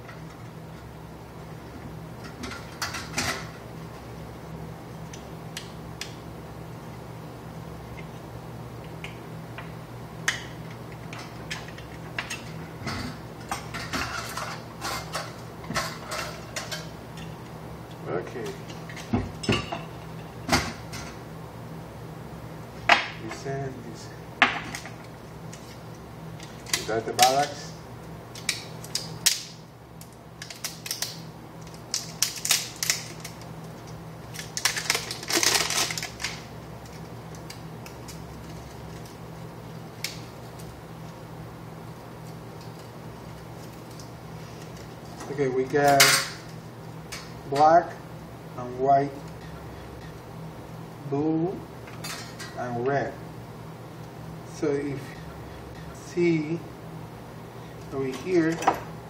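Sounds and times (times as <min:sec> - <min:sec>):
steady low hum: 0:00.0 - 0:59.0
tools and parts clattering on table: 0:11.5 - 0:16.9, 0:58.1 - 0:58.9
rustling of wires: 0:30.0 - 0:41.2.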